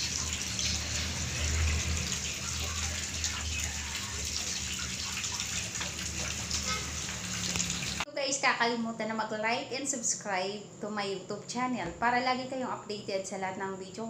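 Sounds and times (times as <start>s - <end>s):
running water: 0.0s - 8.1s.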